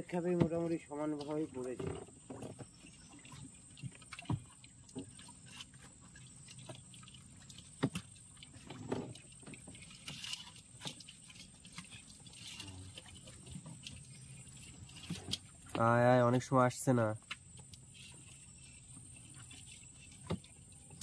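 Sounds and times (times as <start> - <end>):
wet splashes: 0.0 - 21.0
small knocks on boat: 0.2 - 0.8.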